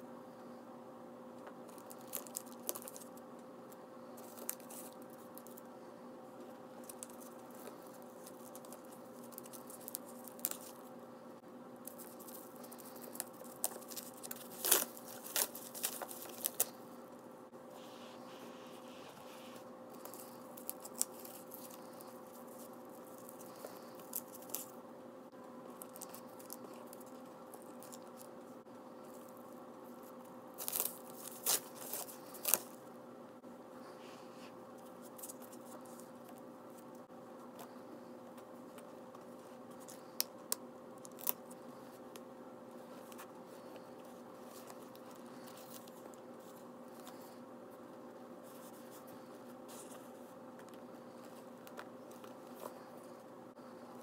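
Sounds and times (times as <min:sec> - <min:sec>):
faint steady hum: 0:00.0 - 0:54.0
plastic wrap crinkling and tearing: 0:01.7 - 0:03.2, 0:11.9 - 0:16.8, 0:20.0 - 0:24.8, 0:30.5 - 0:32.8, 0:41.0 - 0:41.6.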